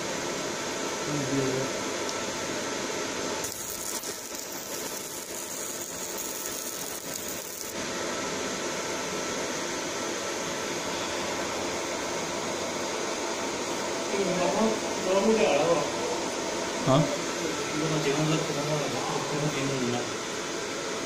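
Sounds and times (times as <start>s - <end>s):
machine fan noise: 0.0s - 21.0s
laser marking hiss: 3.4s - 7.8s.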